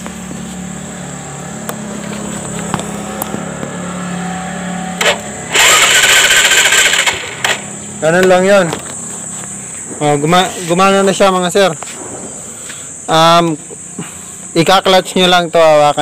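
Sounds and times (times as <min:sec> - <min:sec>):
engine starting roar: 0:00.0 - 0:10.6
electric starter cranking: 0:00.0 - 0:14.6.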